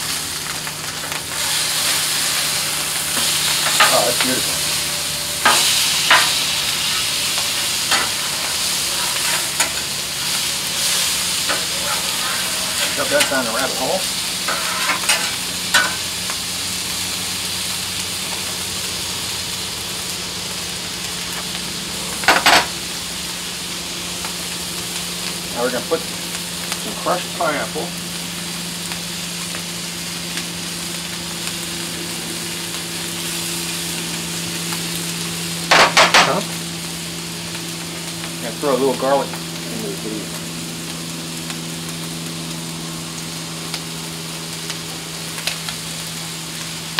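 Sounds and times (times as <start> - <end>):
food sizzling on a griddle: 0.0 - 46.9
steady low hum: 0.0 - 46.9
metal spatula scraping griddle: 0.8 - 16.0.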